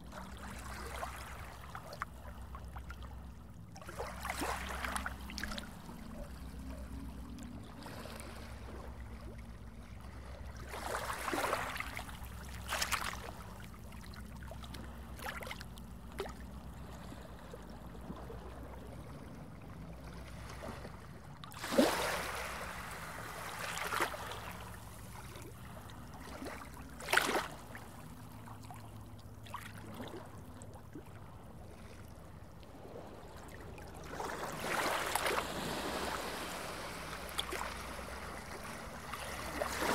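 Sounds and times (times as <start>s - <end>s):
water swooshes: 3.8s - 39.9s.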